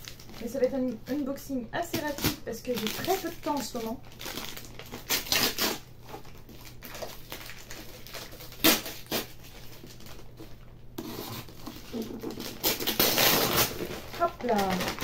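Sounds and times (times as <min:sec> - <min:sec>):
knife cutting paper parcel: 0:08.0 - 0:09.4, 0:11.0 - 0:15.0.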